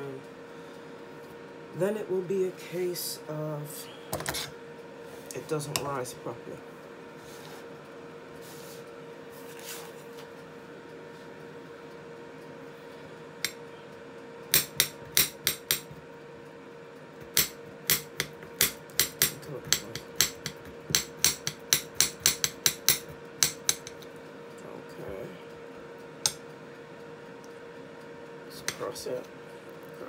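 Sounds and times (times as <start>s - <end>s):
air fryer humming: 0.0s - 30.0s.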